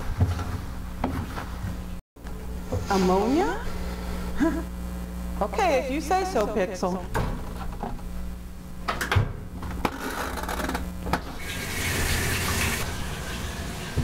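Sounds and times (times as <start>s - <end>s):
water splashing into washer tub: 11.4s - 14.0s.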